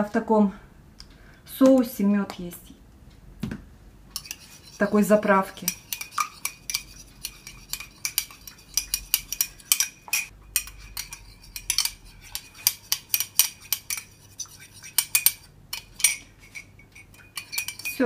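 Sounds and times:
metal spoon clinking in cup: 0:05.5 - 0:18.0.

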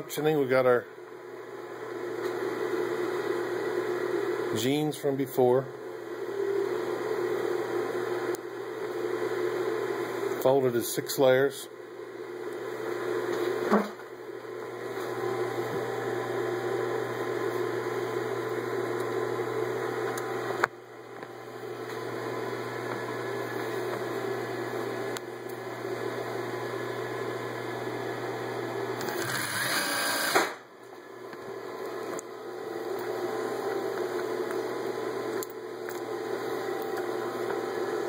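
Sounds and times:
sewing machine whirring: 0:29.0 - 0:30.5.

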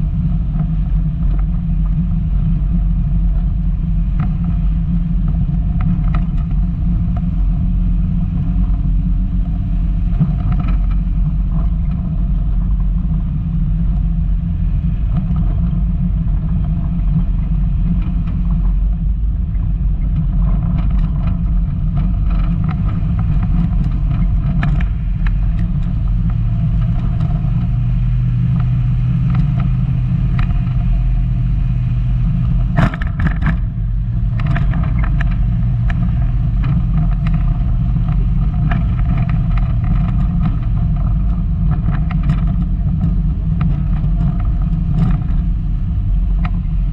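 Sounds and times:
car engine low rumble: 0:00.0 - 0:46.9
sharp knocks and clatter: 0:32.5 - 0:45.5.

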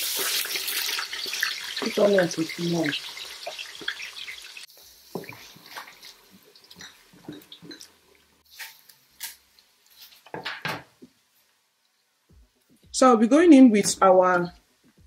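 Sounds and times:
onions sizzling in hot oil: 0:00.0 - 0:10.1.

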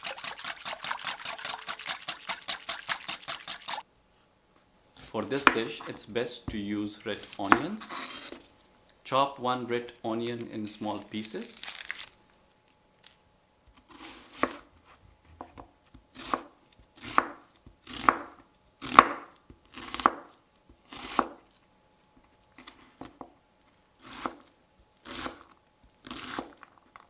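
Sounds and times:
knife slicing onion: 0:07.2 - 0:08.4, 0:13.9 - 0:15.0, 0:15.9 - 0:21.5, 0:24.0 - 0:26.6.

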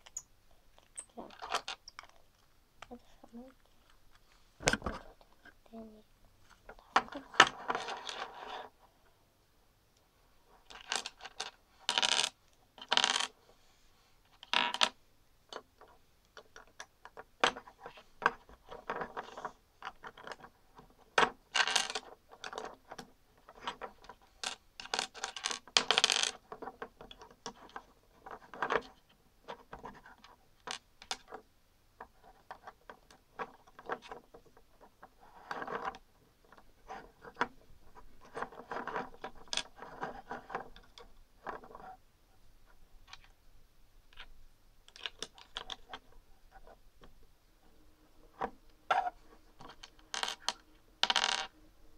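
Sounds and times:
plastic bricks clicking and clattering: 0:10.7 - 0:13.3, 0:21.2 - 0:29.0, 0:44.9 - 0:46.2, 0:48.9 - 0:51.5.

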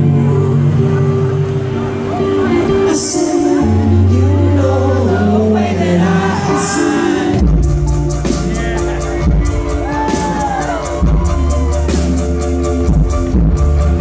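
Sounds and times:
bass and keyboard chords: 0:00.0 - 0:14.0
drums: 0:05.7 - 0:14.0.

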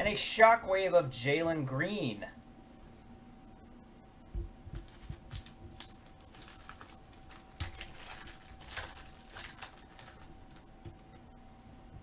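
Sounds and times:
foil wrapper crinkling: 0:05.0 - 0:10.7.

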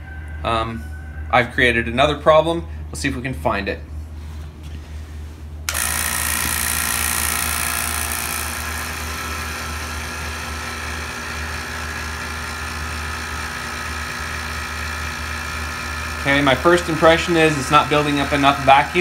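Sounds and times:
vacuum pump whirring: 0:05.6 - 0:19.0.

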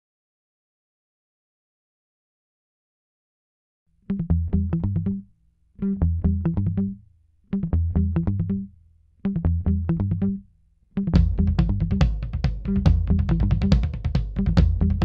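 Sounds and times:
plucked synth and bass: 0:04.1 - 0:05.2, 0:05.8 - 0:07.0, 0:07.6 - 0:08.7, 0:09.3 - 0:10.4, 0:11.0 - 0:15.0
drum beat: 0:11.2 - 0:15.0.

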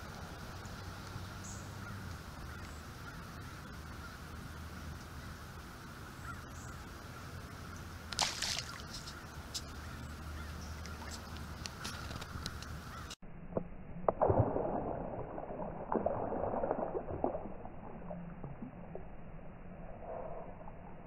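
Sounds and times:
faint outdoor background: 0:00.0 - 0:21.0
splash on pond surface: 0:08.1 - 0:13.0, 0:14.1 - 0:19.0.

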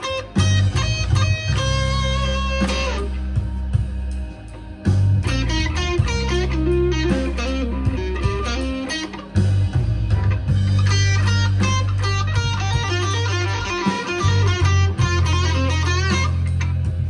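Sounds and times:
electric guitar blues lead: 0:00.0 - 0:17.0
sustained low bass notes: 0:00.4 - 0:08.8, 0:09.4 - 0:13.6.

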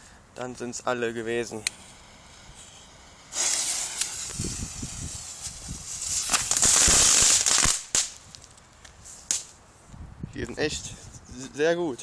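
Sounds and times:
firework hissing and crackling: 0:01.0 - 0:09.6.

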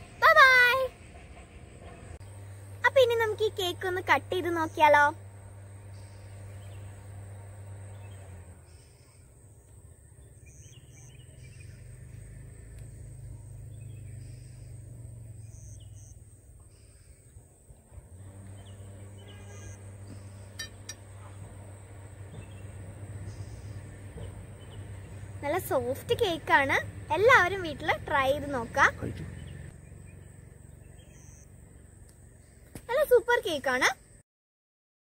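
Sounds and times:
low steady rumble: 0:00.0 - 0:34.2
bird chirps: 0:05.6 - 0:17.6, 0:18.4 - 0:21.4, 0:22.1 - 0:32.8.

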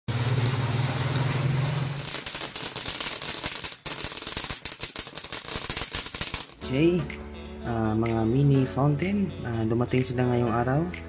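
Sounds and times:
firework hum and rush: 0:00.1 - 0:06.6
ground fountain firework crackling: 0:00.1 - 0:06.8.

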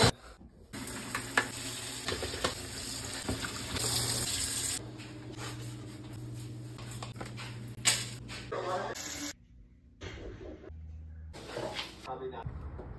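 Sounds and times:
knocks and clinks of washing: 0:00.8 - 0:04.0.

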